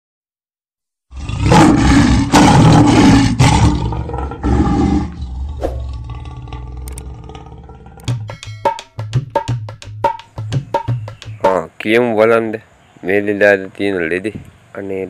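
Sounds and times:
rushing roar: 1.2 - 7.8.

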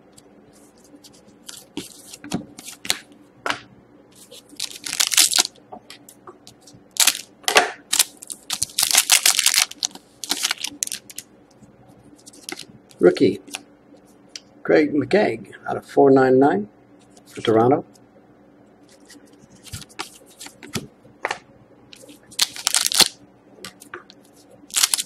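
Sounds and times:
foil wrapper crinkling and tearing: 4.2 - 5.5, 6.9 - 7.3, 7.9 - 11.2, 22.0 - 23.2, 24.7 - 25.0.

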